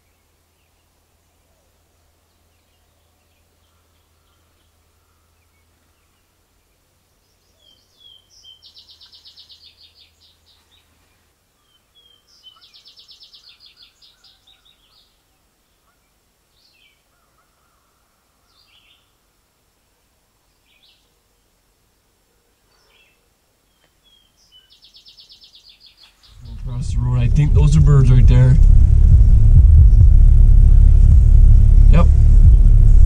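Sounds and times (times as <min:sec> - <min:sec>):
songbird singing with trill: 0:00.0 - 0:10.9, 0:11.6 - 0:17.8, 0:18.4 - 0:19.2, 0:20.5 - 0:21.6, 0:22.7 - 0:26.6
faint outdoor background noise: 0:00.0 - 0:33.0.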